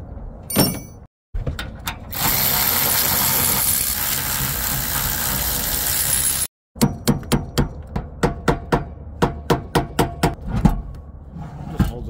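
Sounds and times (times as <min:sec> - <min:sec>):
electric ratchet running: 0:02.1 - 0:06.5.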